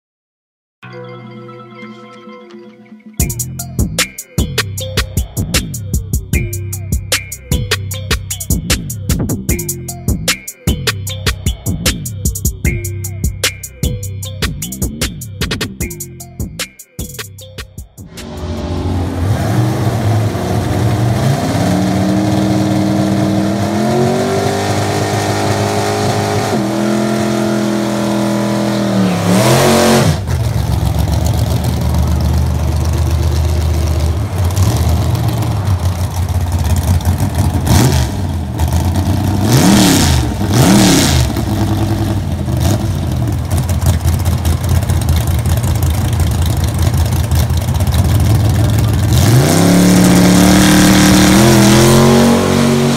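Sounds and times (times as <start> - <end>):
engine revving through gears: 18.1 - 52.9
truck engine idling: 24.8 - 39.6, 41.3 - 51.4.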